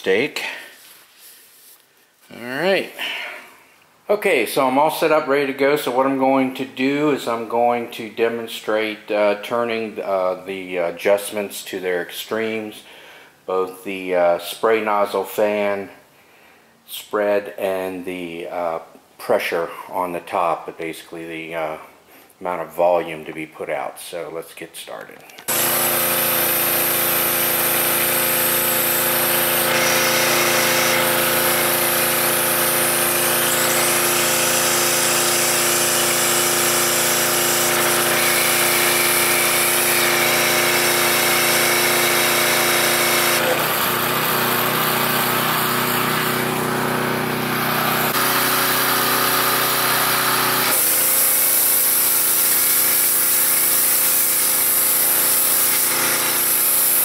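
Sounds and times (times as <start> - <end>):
pressure washer engine drone: 25.5 - 57.0.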